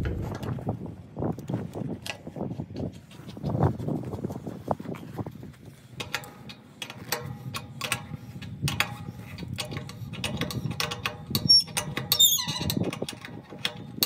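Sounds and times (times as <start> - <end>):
wrench clicking on brass fitting: 6.0 - 14.0.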